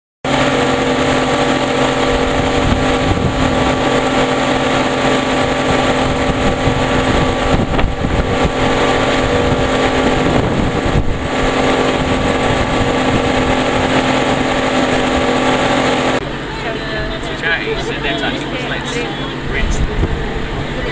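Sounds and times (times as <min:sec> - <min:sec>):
motorboat engine running: 0:00.2 - 0:20.9
water rushing from wake: 0:00.3 - 0:16.5.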